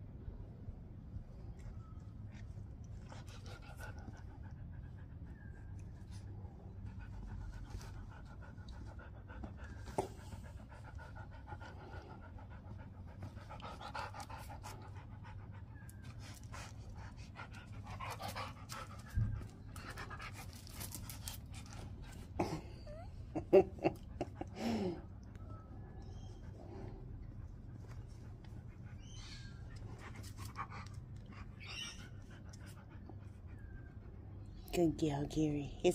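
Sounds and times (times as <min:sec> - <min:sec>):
dog panting: 0:06.1 - 0:22.3.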